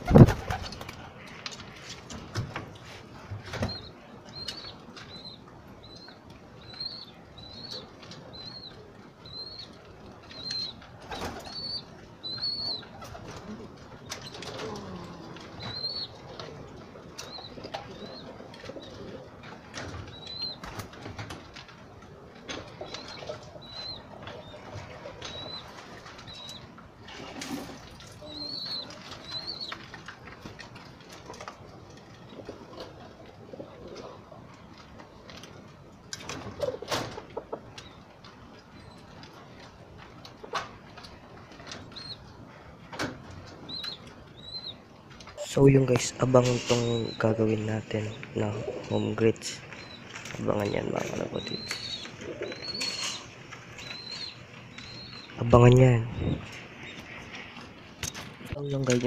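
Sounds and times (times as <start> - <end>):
wing flaps: 0.0 - 2.6
pigeons pecking grain: 0.0 - 59.0
pigeon cooing: 10.4 - 20.8, 22.1 - 30.0, 49.6 - 55.4.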